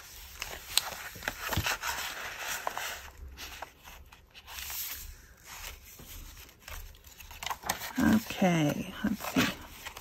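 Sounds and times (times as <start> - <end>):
paper pages rustling: 0.0 - 10.0.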